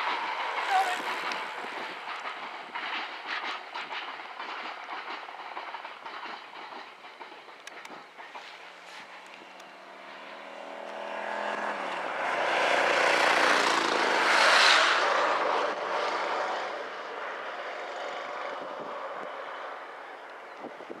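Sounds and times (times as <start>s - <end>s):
freight wagons rumbling past: 0.0s - 21.0s
aircraft roar passing over: 8.8s - 21.0s.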